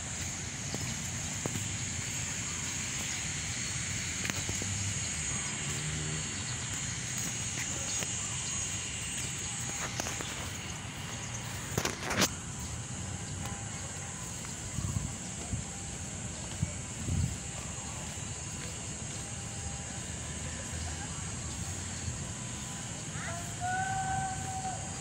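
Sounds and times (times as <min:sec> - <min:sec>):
steady high hiss: 0:00.0 - 0:25.0
crackling clicks: 0:09.6 - 0:12.4
phone rustling while carried: 0:09.6 - 0:12.4.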